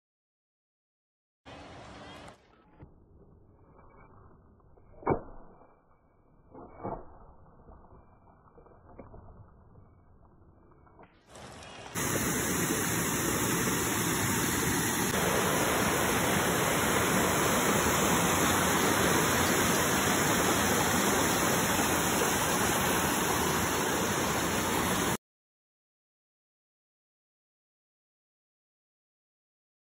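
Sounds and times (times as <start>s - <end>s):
stream rushing over rocks: 11.4s - 25.2s.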